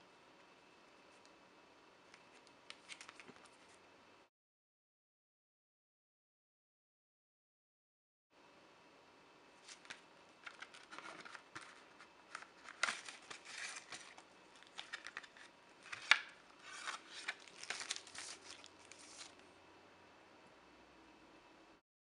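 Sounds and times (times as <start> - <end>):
paper and card rustling: 2.2 - 3.8, 9.6 - 19.4.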